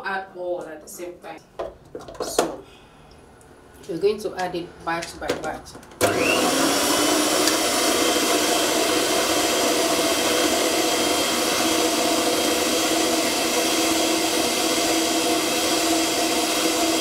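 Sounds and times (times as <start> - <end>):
electric mixer running: 6.0 - 17.0.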